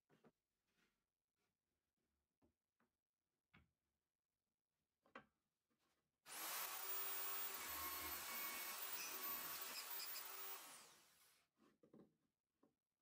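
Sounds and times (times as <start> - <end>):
drill bit boring through plywood: 6.3 - 11.3
electric drill whining: 6.3 - 11.3.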